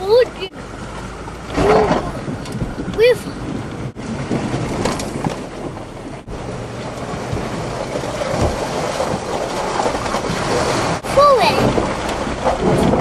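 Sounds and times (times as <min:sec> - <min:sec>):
engine and tyres rumbling: 0:00.0 - 0:13.0
wind on microphone: 0:01.5 - 0:13.0
person's voice: 0:03.0 - 0:03.4, 0:11.0 - 0:11.7.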